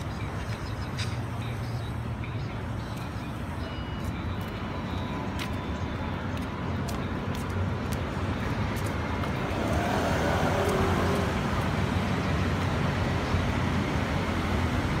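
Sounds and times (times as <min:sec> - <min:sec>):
street traffic rumble: 0:00.0 - 0:15.0
vehicle passing: 0:06.8 - 0:15.0.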